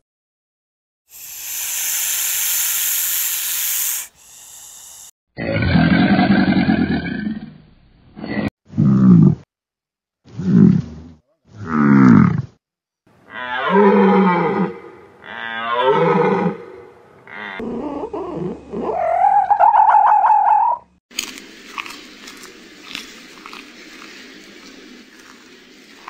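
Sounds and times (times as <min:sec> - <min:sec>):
crocodile growls: 0:05.4 - 0:07.6, 0:10.4 - 0:12.6
high wavering animal cry: 0:13.3 - 0:20.9.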